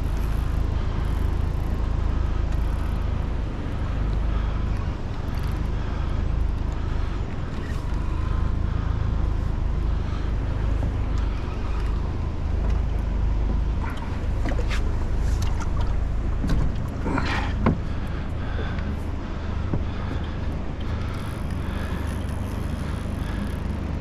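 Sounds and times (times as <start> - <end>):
outboard motor idling: 0.0 - 24.0
gear knocking against metal boat: 15.4 - 18.9.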